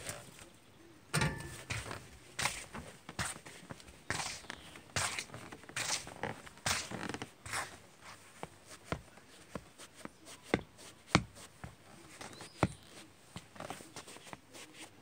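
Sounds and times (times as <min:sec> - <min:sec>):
shoes tapping on stone tiles: 0:01.2 - 0:14.9
shoe scraping scuffs: 0:01.4 - 0:09.7
shoe creaks: 0:04.1 - 0:07.8.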